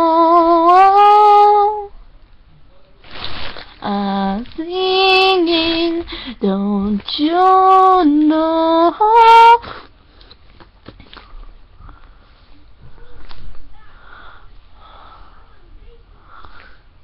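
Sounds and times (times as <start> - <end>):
girl singing unaccompanied: 0.0 - 2.0, 3.8 - 9.8.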